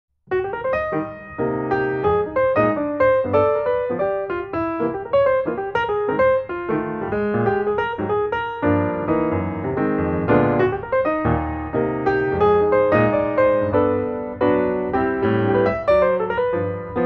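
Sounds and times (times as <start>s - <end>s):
piano music: 0.3s - 17.0s.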